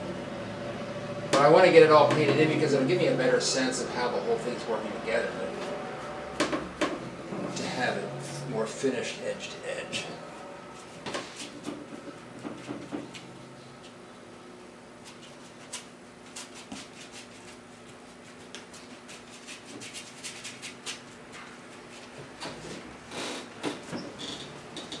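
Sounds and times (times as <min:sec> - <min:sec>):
low room hum: 0:00.0 - 0:25.0
paintbrush scratching canvas: 0:15.0 - 0:22.2.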